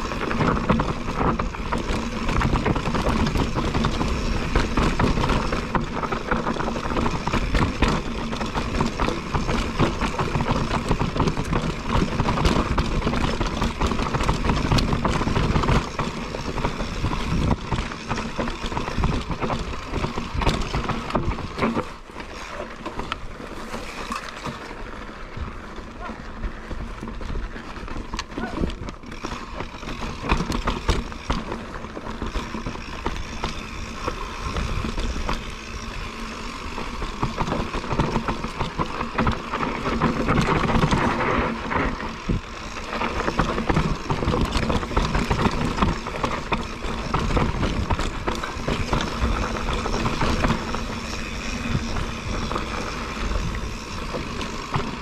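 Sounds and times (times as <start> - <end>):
bike rattling over bumps: 0.0 - 55.0
bike tyres rolling over dirt: 0.0 - 55.0
wind rumbling on microphone: 23.2 - 55.0.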